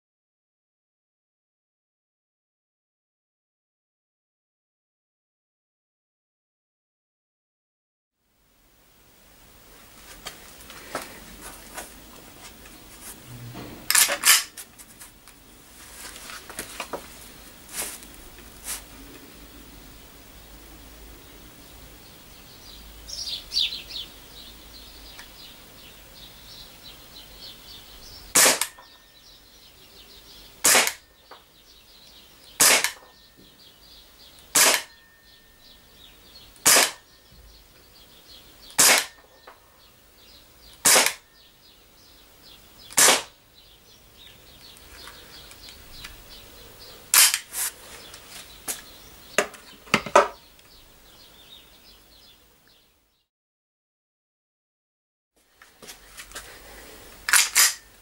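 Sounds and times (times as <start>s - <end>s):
slide snapping back: 13.5s - 14.6s, 28.4s - 28.8s, 30.6s - 31.0s, 32.6s - 33.0s, 34.6s - 34.9s, 36.6s - 37.0s, 38.8s - 39.2s, 40.8s - 41.2s, 42.9s - 43.3s, 47.1s - 47.7s, 57.2s - 57.8s
pistol shots cracking: 13.9s - 14.6s, 28.3s - 28.9s, 30.6s - 31.0s, 32.6s - 33.1s, 34.5s - 35.0s, 36.6s - 37.0s, 38.8s - 39.2s, 40.8s - 41.2s, 42.9s - 43.3s, 47.1s - 47.5s, 57.3s - 57.9s.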